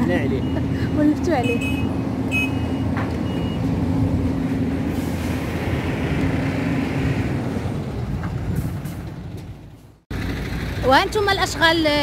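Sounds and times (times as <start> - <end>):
diesel engines droning: 0.0 - 12.0.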